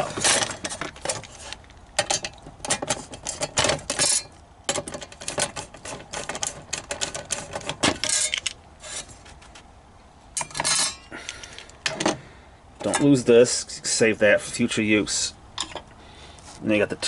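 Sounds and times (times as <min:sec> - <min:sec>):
metal scraping on metal: 0:00.0 - 0:09.4.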